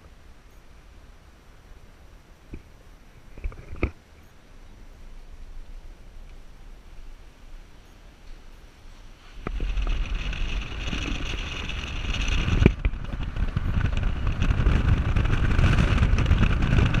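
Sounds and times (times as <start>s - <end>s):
road noise: 0.0s - 17.0s
wind rushing over microphone: 8.5s - 17.0s.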